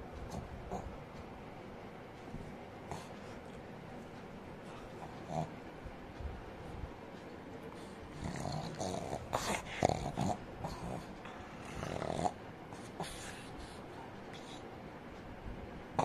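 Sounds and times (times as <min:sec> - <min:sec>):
dog snorting and growling: 0:00.3 - 0:00.9, 0:02.9 - 0:03.4, 0:04.7 - 0:05.7, 0:07.8 - 0:14.6.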